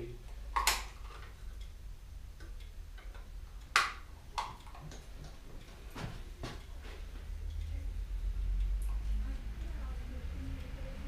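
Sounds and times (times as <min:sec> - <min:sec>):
low steady hum: 0:00.0 - 0:11.0
sharp clicks and taps: 0:02.4 - 0:07.7.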